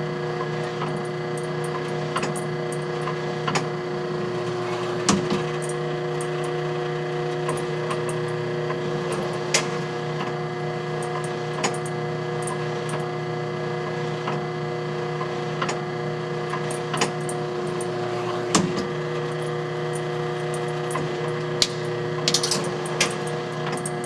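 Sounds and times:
electric motor hum: 0:02.6 - 0:11.2, 0:13.1 - 0:24.0
mechanism clicking and clanking: 0:16.5 - 0:24.0.

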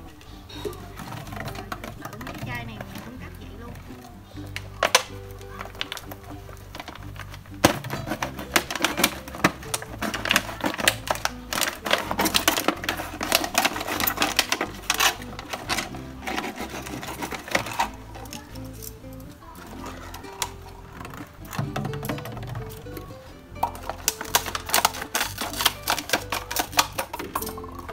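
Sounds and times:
background music with held notes: 0:00.0 - 0:27.9
scissors snipping plastic bottle: 0:07.6 - 0:22.3, 0:23.6 - 0:27.9.

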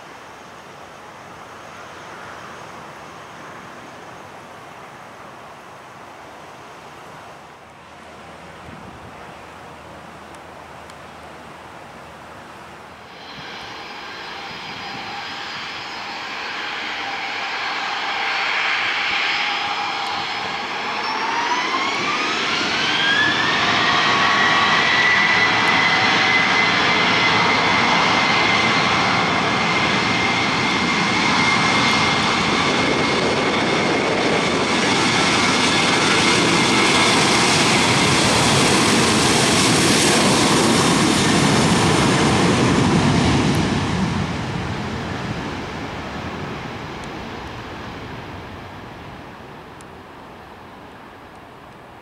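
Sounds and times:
jet engine whine: 0:00.0 - 0:04.7, 0:12.7 - 0:52.0
loud jet roar: 0:13.0 - 0:49.2.

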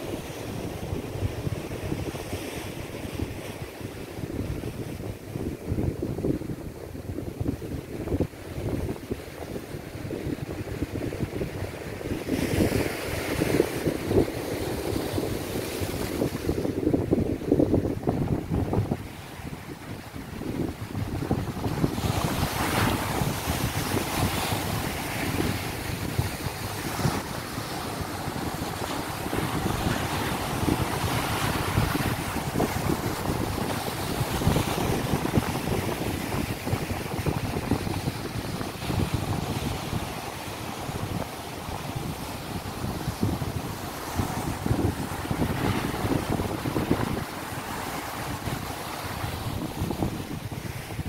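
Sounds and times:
wind buffeting microphone: 0:00.0 - 0:51.0
surf breaking over rocks: 0:12.2 - 0:51.0.

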